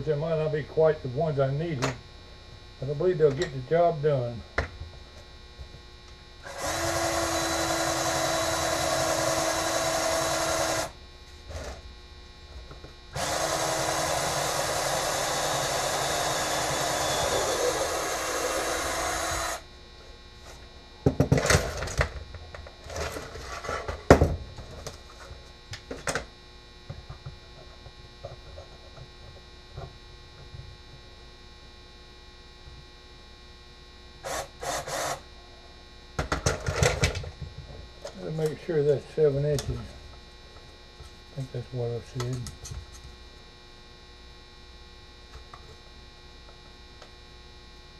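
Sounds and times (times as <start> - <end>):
electric drill boring into wood: 6.4 - 11.0, 13.2 - 19.7, 34.2 - 35.2.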